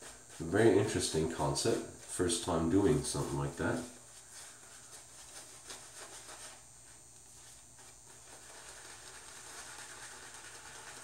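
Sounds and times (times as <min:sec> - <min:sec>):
shaving brush swishing lather: 0:00.0 - 0:11.0.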